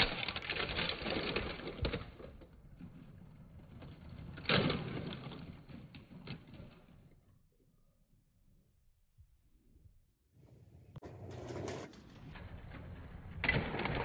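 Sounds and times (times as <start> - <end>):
plastic bricks clattering: 0.0 - 7.2.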